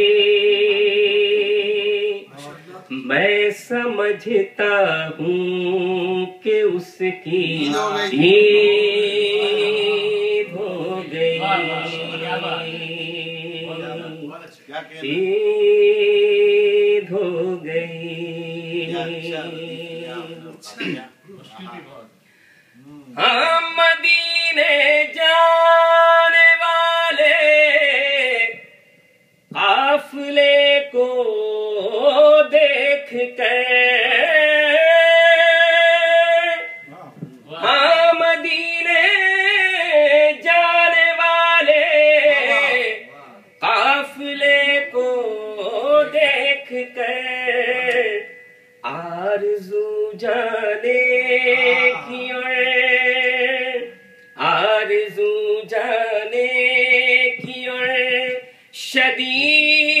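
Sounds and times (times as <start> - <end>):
man singing unaccompanied: 0.0 - 20.9, 22.8 - 28.9, 29.5 - 60.0.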